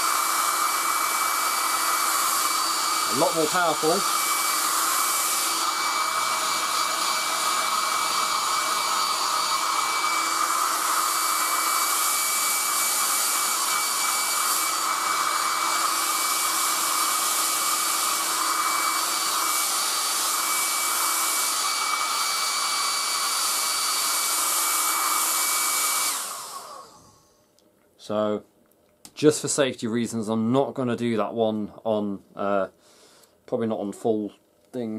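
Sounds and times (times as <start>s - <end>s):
hairdryer blowing air: 0.0s - 27.5s.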